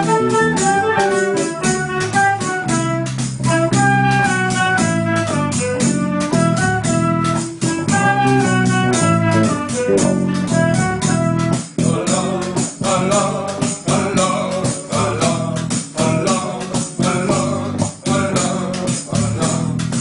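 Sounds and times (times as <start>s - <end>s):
folk band playing: 0.0s - 13.2s.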